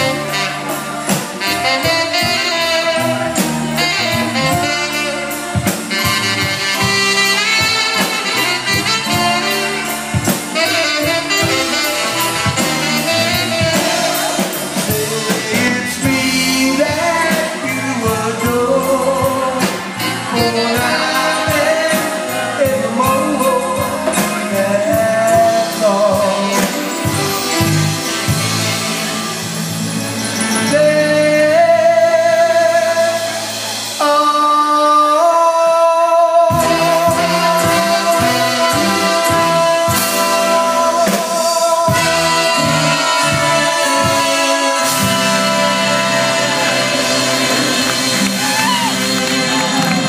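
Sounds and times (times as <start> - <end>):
bass: 0.0 - 50.0
drums: 0.0 - 50.0
saxophone and horns: 0.0 - 50.0.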